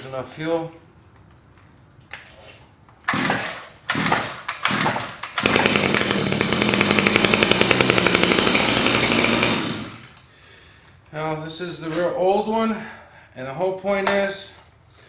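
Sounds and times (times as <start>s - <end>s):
recoil rope pulls: 3.1s - 10.2s
string trimmer engine running: 3.1s - 10.2s.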